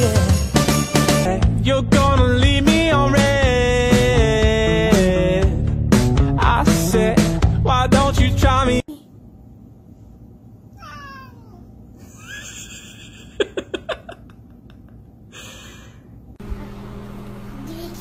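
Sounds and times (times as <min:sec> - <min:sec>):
pop song with singing: 0:00.0 - 0:08.9
cat meowing: 0:10.8 - 0:11.7.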